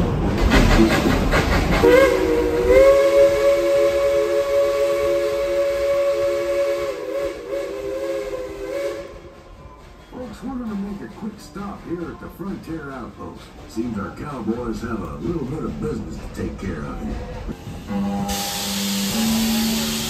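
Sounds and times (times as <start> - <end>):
train rumbling and hissing: 0.0 - 20.0
steam locomotive whistle: 0.6 - 9.6, 17.6 - 20.0.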